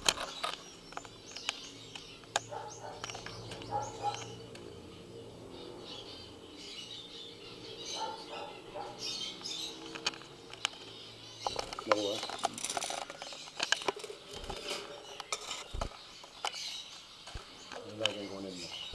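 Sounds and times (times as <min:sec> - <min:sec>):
sharp clicks: 0:00.0 - 0:04.7, 0:09.4 - 0:16.7
finches chirping: 0:00.0 - 0:18.9.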